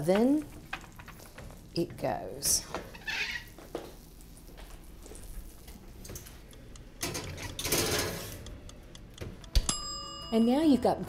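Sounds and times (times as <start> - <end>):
skillet scraping on metal: 2.9 - 3.6, 7.0 - 8.6.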